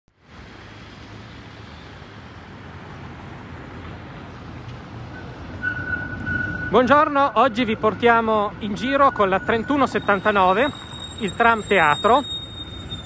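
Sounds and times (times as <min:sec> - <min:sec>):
tram rolling on tracks: 0:03.7 - 0:13.0.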